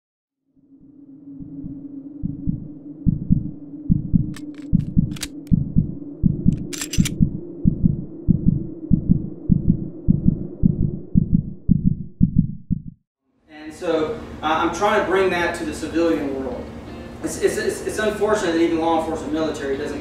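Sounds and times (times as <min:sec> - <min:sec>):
steady low hum: 0:00.8 - 0:13.0
heartbeat thumps: 0:01.4 - 0:13.0
sharp clicks: 0:04.4 - 0:05.6, 0:06.5 - 0:07.2.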